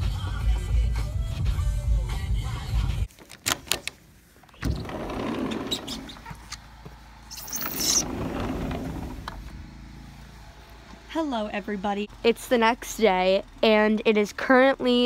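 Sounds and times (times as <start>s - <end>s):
door lock and handle clicking: 3.2s - 5.0s
sliding glass door on track: 4.6s - 6.3s, 7.3s - 9.5s
sharp scraping rush: 7.2s - 9.4s.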